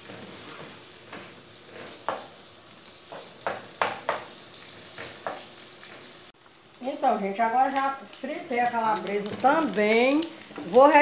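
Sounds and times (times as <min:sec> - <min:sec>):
spatula scraping a pan: 0:00.0 - 0:02.4
sausage sizzling in a pan: 0:00.0 - 0:11.0.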